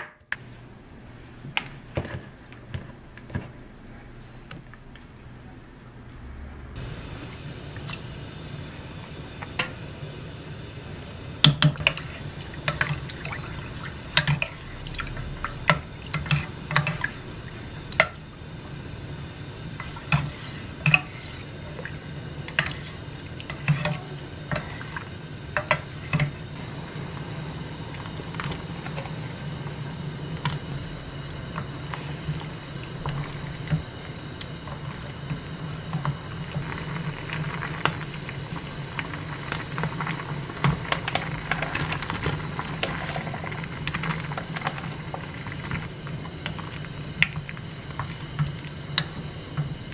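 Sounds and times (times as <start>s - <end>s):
water sloshing in a pot: 11.4s - 18.8s, 19.6s - 30.8s, 31.4s - 49.9s.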